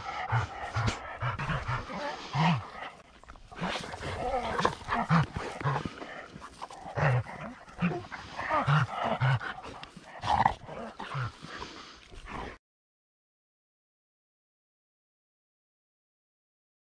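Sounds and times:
dogs panting hard: 0.0 - 12.6
low dog noises: 0.0 - 12.6.

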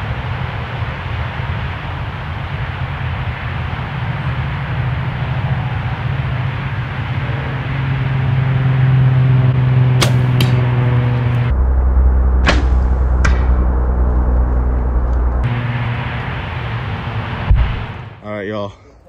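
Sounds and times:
loud steady low drone: 0.0 - 18.9
sharp snaps: 10.0 - 10.7
arrow hitting deer: 10.0 - 10.8, 12.4 - 13.6.

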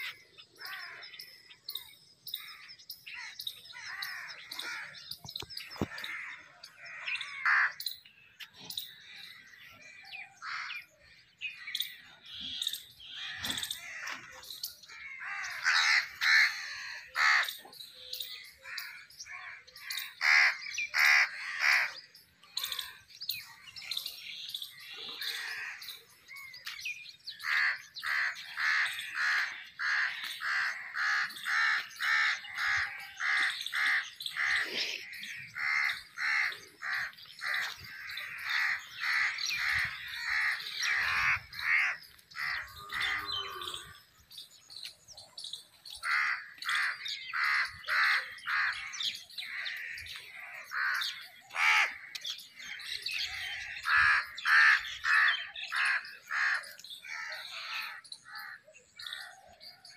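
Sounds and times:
crows cawing: 5.8 - 7.8, 14.9 - 17.5, 18.6 - 22.0, 27.4 - 43.9, 46.0 - 52.2.

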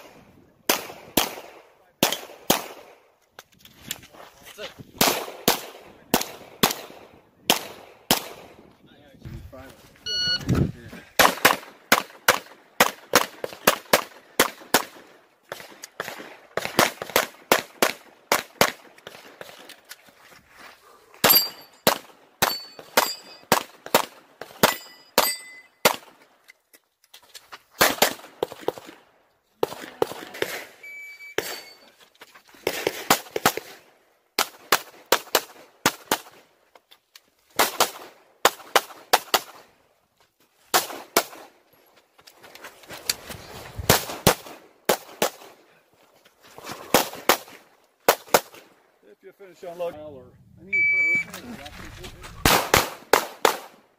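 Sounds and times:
pistol shots: 0.0 - 3.0, 5.0 - 8.6, 11.2 - 19.5, 21.2 - 26.2, 27.8 - 29.0, 37.6 - 39.7, 52.4 - 53.9
metallic ring of steel targets: 21.2 - 23.5, 24.6 - 25.8, 31.4 - 31.9.

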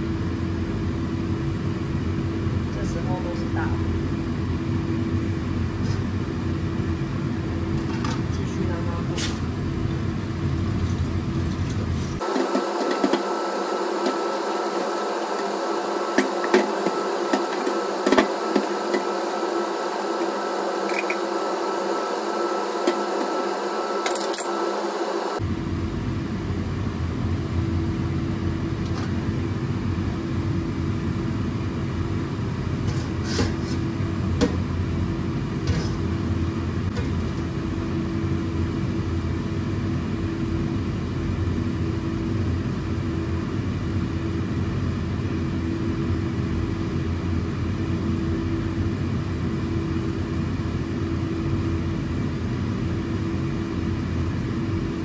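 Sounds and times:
machine humming: 12.2 - 32.9.

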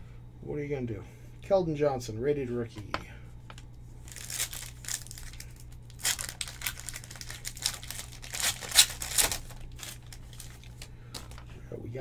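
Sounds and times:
low steady hum: 0.0 - 12.0
foil wrapper crinkling and tearing: 4.0 - 11.4.

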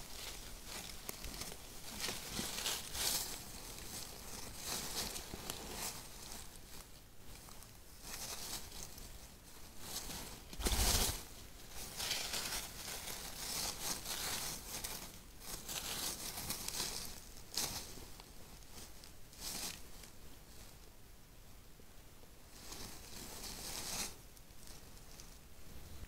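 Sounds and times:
dry leaves rustling and crackling: 0.0 - 20.8, 22.4 - 25.5.

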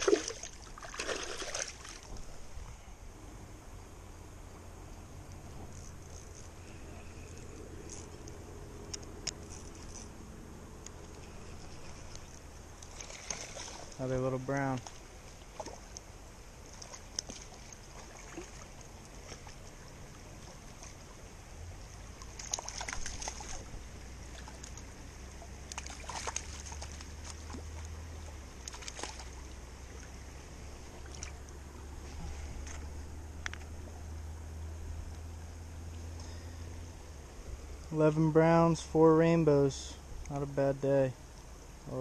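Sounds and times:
fish splashing: 0.0 - 2.5, 11.0 - 14.0, 14.8 - 34.8
creek water over stones: 0.0 - 3.5, 4.4 - 42.0.

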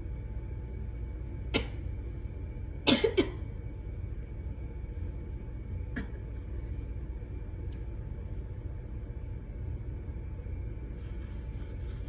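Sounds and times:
low room noise rumble: 0.0 - 12.0
woman coughing: 2.8 - 3.4.

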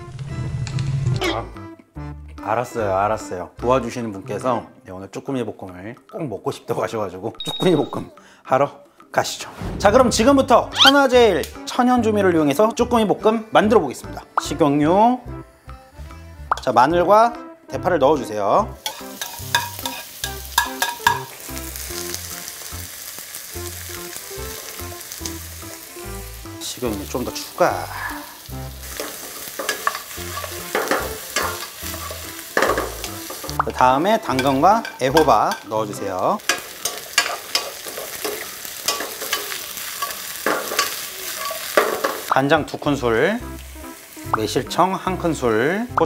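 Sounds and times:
garlic sizzling in oil: 18.7 - 46.0
wooden spoon scraping a pan: 28.8 - 33.5.

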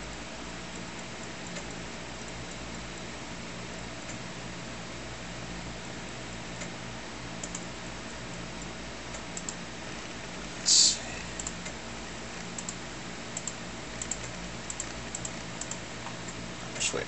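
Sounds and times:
steady low hum: 0.0 - 17.0
computer drive clicks: 0.5 - 3.1, 7.4 - 10.2, 11.3 - 17.0.

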